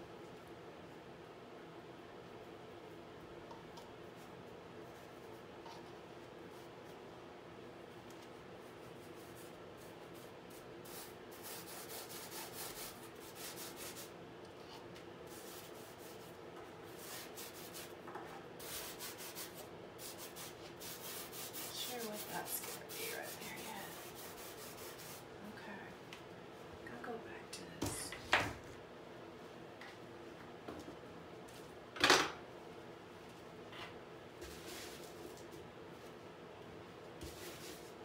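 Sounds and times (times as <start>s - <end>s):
paintbrush scrubbing on canvas: 8.7s - 14.2s, 15.3s - 18.0s, 18.6s - 25.3s, 37.2s - 38.0s.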